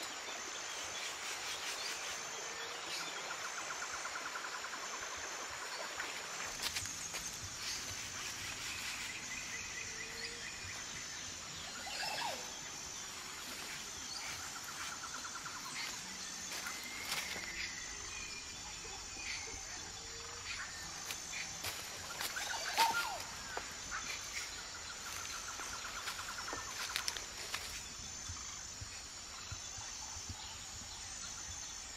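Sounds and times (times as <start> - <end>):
birds chirping and trilling: 7.6 - 28.8.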